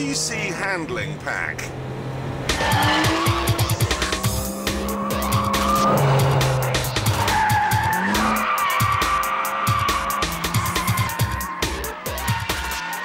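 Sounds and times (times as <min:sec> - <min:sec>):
sports car engine: 0:00.0 - 0:13.0
background music: 0:02.2 - 0:13.0
tyres squealing: 0:02.5 - 0:13.0.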